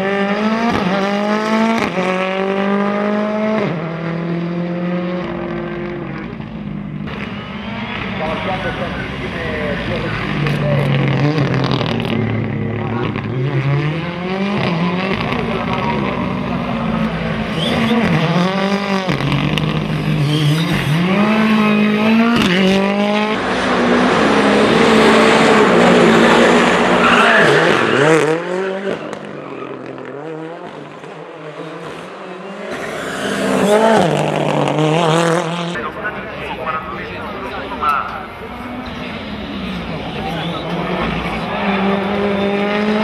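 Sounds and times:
car engine revving hard: 0.0 - 6.5, 7.1 - 35.9, 38.6 - 43.0
tyre squeal: 17.5 - 18.4, 20.1 - 21.5.

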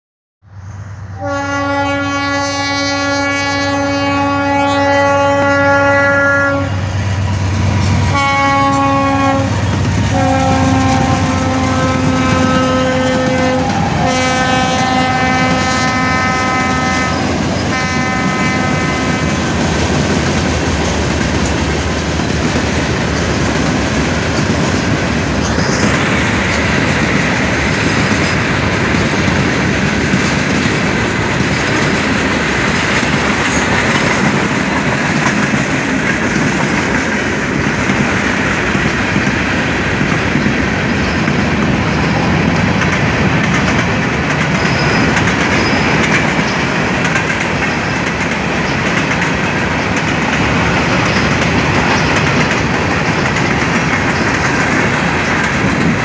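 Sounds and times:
locomotive air horn blasts: 1.1 - 6.9, 8.0 - 19.5
train wheels clacking over rails: 7.1 - 56.0.

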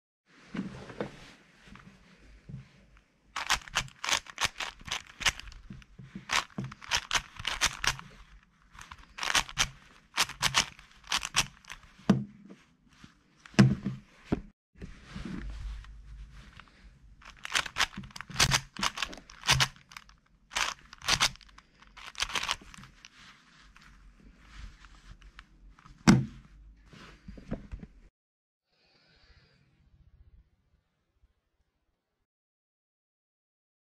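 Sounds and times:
speed cube clicking: 3.4 - 5.7, 6.3 - 8.2, 8.8 - 11.8, 17.2 - 22.8.

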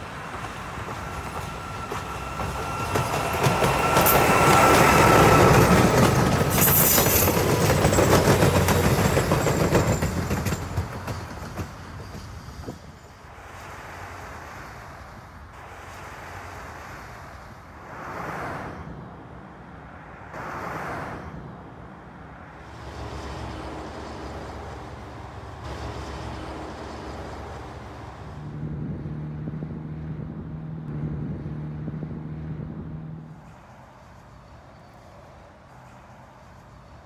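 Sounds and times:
cars passing: 0.0 - 9.3, 11.6 - 37.0
steady engine hum: 13.4 - 37.0.

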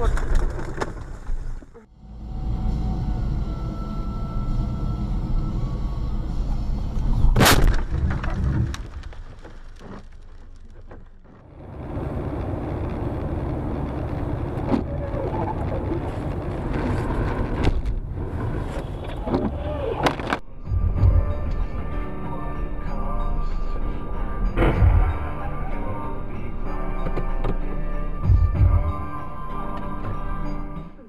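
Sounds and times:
tyre and engine rumble: 0.0 - 31.0
car collision bang: 7.3 - 9.0.

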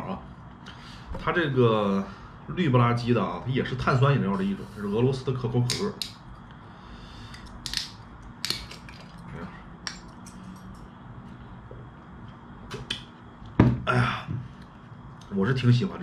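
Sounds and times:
bottle cap prying clicks: 7.3 - 9.2.

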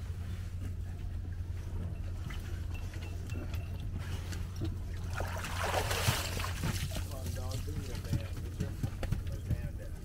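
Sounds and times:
steady low hum: 0.0 - 10.0
dog splashing out of water: 5.1 - 6.9.

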